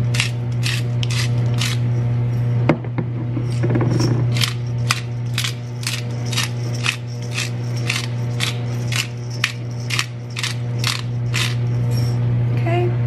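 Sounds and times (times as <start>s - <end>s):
spice jar rattling: 0.0s - 2.0s, 4.3s - 11.7s
low hum: 0.0s - 13.0s.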